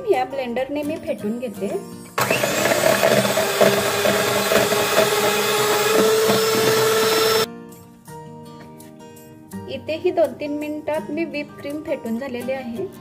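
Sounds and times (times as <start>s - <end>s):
electric hand mixer whipping cream: 2.2s - 7.5s.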